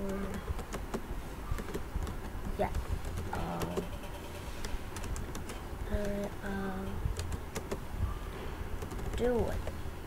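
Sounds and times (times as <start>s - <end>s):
keyboard typing clicks: 0.0s - 7.8s, 8.8s - 9.8s
person humming: 3.3s - 3.8s.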